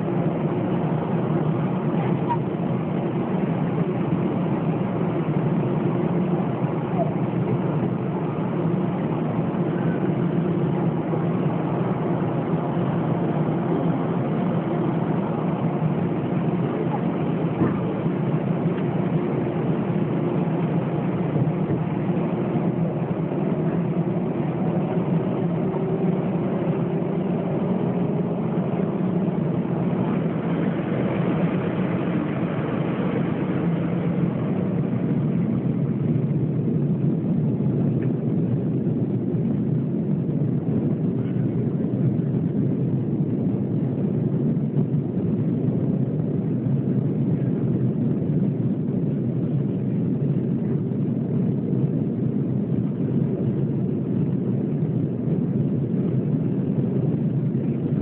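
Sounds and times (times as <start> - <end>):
jet engines humming in cabin: 0.0 - 58.0.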